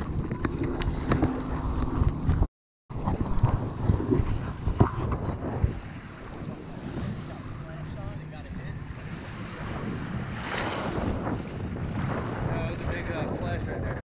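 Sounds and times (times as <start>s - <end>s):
wind buffeting microphone: 0.0s - 14.0s
small waves washing onto beach: 3.0s - 13.7s.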